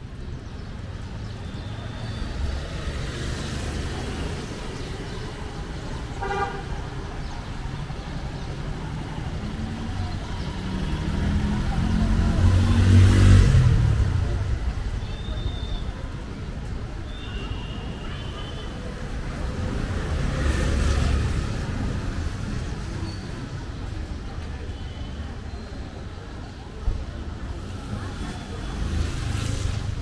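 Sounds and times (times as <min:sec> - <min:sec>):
street background: 0:00.0 - 0:30.0
vehicle horn toot: 0:06.2 - 0:06.6
vehicle engine passing: 0:10.3 - 0:14.9.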